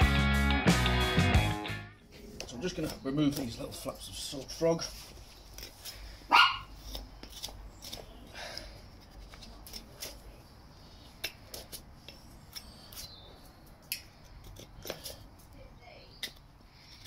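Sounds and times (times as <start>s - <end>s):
knife slicing and scraping hoof: 2.5s - 10.4s.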